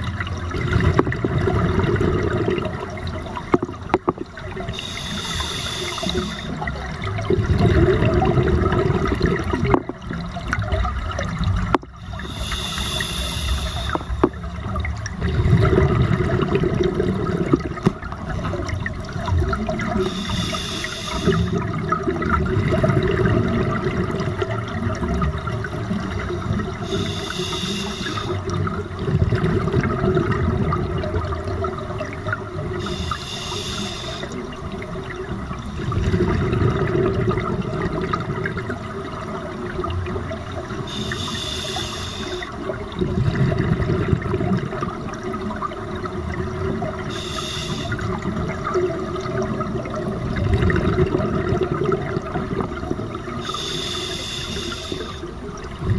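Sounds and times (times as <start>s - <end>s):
bubbling exhaled air: 0.0s - 55.9s
hissing regulator inhalations: 4.7s - 6.6s, 12.0s - 14.4s, 20.0s - 21.6s, 26.8s - 28.4s, 32.8s - 34.4s, 40.8s - 42.6s, 47.1s - 48.1s, 53.4s - 55.4s.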